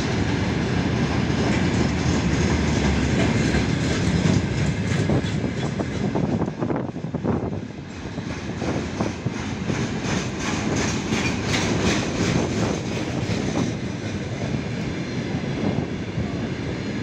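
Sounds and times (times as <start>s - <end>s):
train wheel clicks: 0.0s - 6.7s, 7.8s - 14.6s
steel wheels rumbling on rail: 0.0s - 17.0s.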